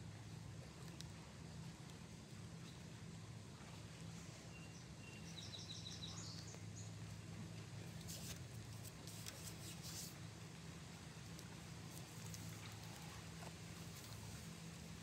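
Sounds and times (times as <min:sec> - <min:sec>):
faint low hum: 0:00.0 - 0:15.0
small bird chirping: 0:04.5 - 0:07.0.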